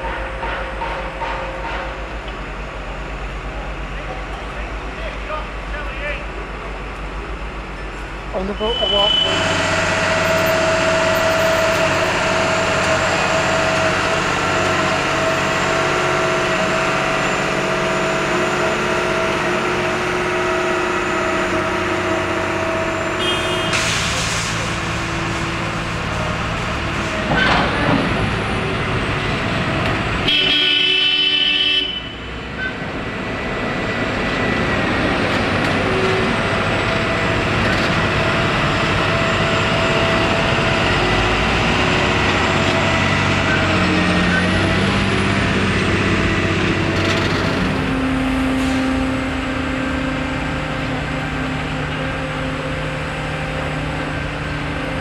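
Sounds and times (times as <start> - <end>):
diesel engine running: 0.0 - 30.7, 32.2 - 55.0
loud horn blast: 8.5 - 12.4, 21.2 - 24.4, 30.2 - 32.4.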